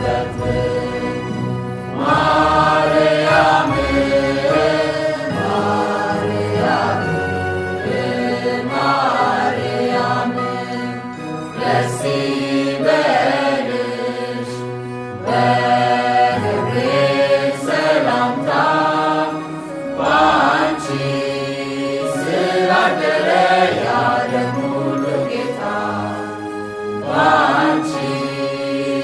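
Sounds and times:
person singing a hymn: 0.0 - 29.0
sustained backing tones: 0.0 - 29.0.

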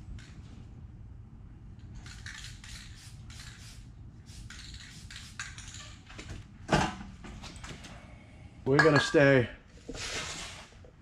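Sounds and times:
spray can hissing: 2.1 - 5.6.

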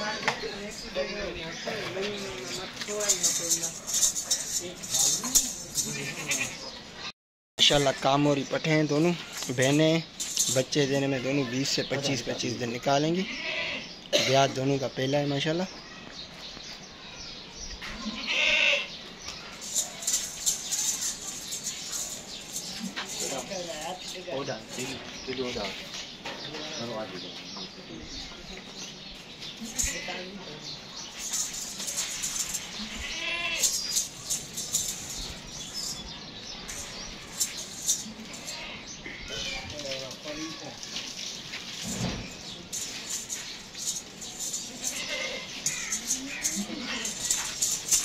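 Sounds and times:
goat bleating: 5.9 - 6.7, 13.2 - 13.9, 18.0 - 18.9, 32.6 - 33.7, 38.0 - 39.7, 44.8 - 47.4.

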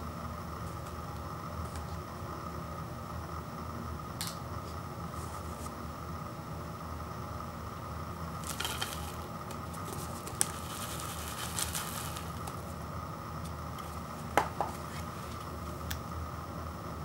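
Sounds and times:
steady background hum: 0.0 - 17.0
foil lid rustling: 8.4 - 12.7
dry noodles shifting in cup: 8.4 - 12.8
paper cup being handled: 8.4 - 12.8.

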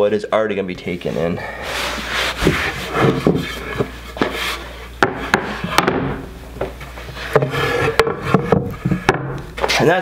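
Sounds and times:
cloth rubbing over wood: 1.0 - 4.8
wooden boards knocking: 5.0 - 9.8.

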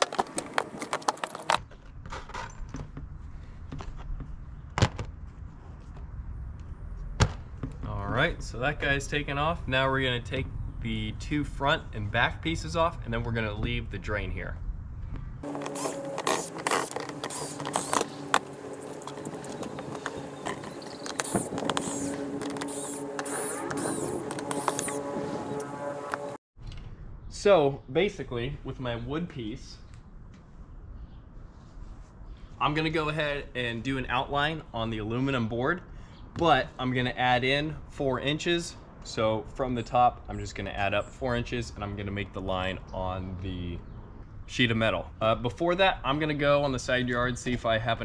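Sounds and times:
cordless drill unscrewing bolts: 15.5 - 25.0.

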